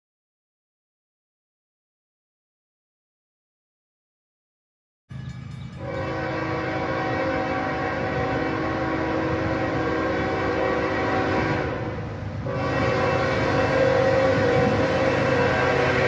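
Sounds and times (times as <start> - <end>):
train rumbling: 5.1 - 16.0
locomotive air horn chord: 5.8 - 16.0.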